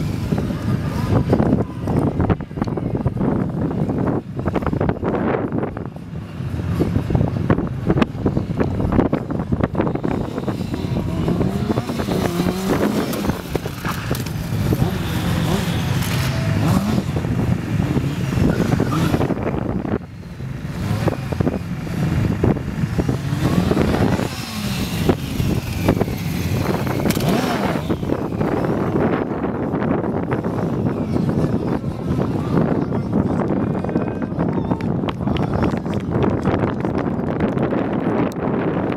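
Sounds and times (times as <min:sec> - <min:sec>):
motorcycle engine revving: 0:06.1 - 0:32.7.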